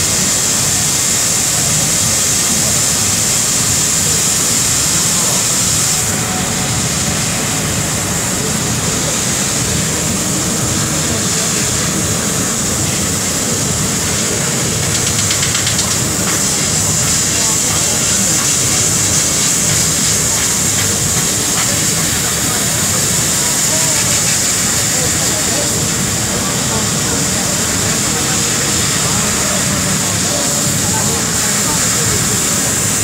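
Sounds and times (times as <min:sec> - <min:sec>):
laser cutter gas hiss: 0:00.0 - 0:33.0.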